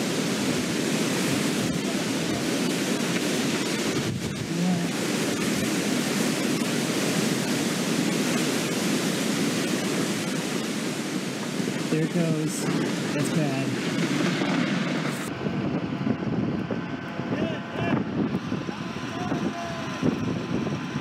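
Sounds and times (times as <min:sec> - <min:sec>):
heavy rain: 0:00.0 - 0:21.0
storm wind: 0:00.0 - 0:21.0.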